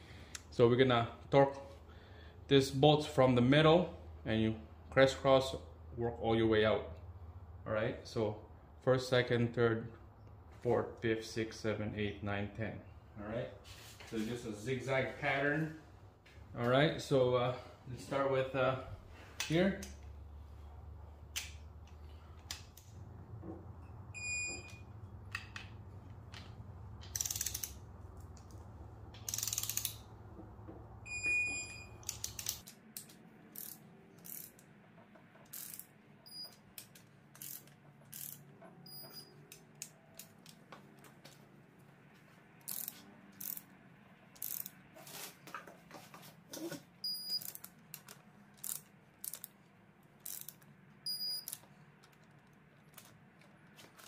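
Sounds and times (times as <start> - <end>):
torque wrench ratcheting clicks: 27.0 - 27.8, 29.2 - 30.0, 32.0 - 34.7, 35.4 - 35.9, 36.7 - 38.5, 42.7 - 43.7, 44.4 - 44.8, 47.3 - 49.5, 50.2 - 50.6.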